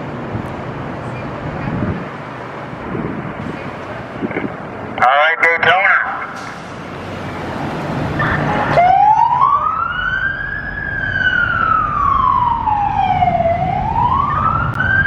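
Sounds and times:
truck engine: 0.0 - 15.0
siren wailing: 8.2 - 15.0.

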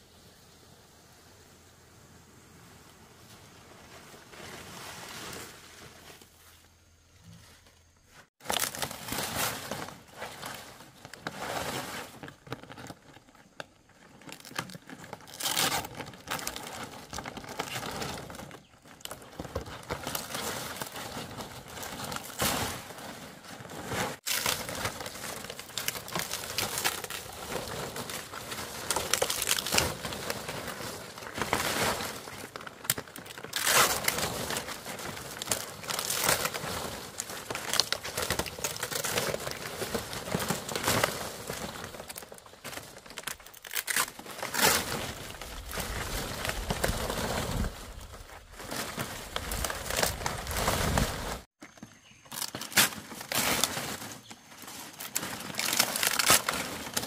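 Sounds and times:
palm fronds rustling: 2.8 - 57.0.

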